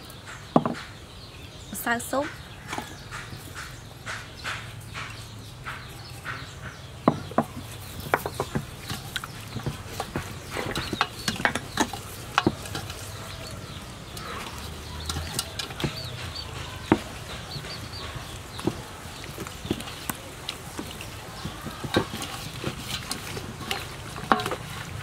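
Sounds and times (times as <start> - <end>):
wet squelches and slaps: 7.7 - 25.0.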